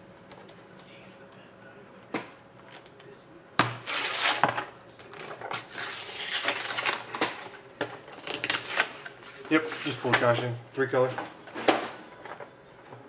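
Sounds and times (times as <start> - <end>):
paper wrapping tearing: 3.8 - 7.2, 8.1 - 9.1.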